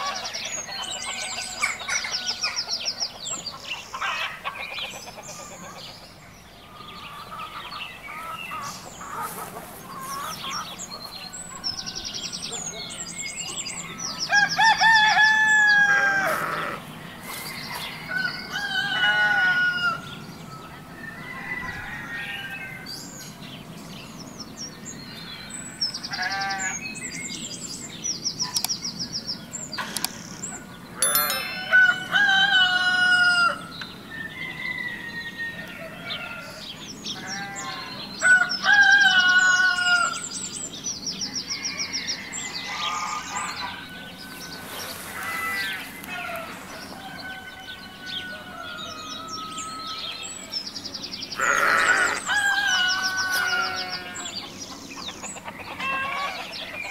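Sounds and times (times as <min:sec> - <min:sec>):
roosters crowing: 0:14.3 - 0:17.0, 0:18.0 - 0:20.2, 0:21.0 - 0:22.9, 0:31.2 - 0:36.6, 0:37.2 - 0:40.3, 0:41.7 - 0:50.2, 0:51.3 - 0:54.4
small birds chirping: 0:26.4 - 0:32.0.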